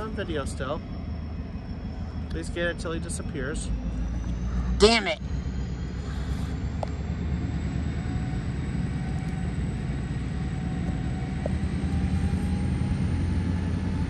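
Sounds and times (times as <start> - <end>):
diesel locomotive engine rumbling: 0.0 - 14.0.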